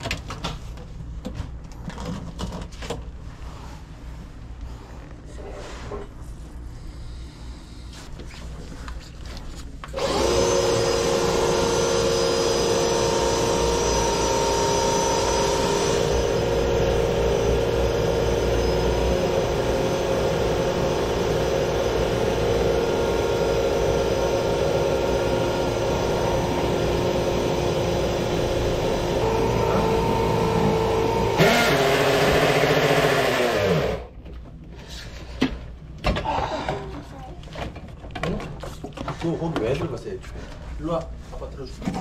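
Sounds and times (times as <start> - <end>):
drill motor whine: 9.9 - 34.1.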